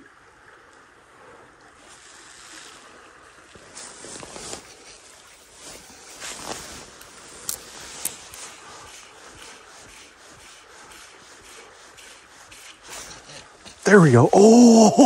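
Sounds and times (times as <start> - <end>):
dry grass rustling: 3.5 - 13.8.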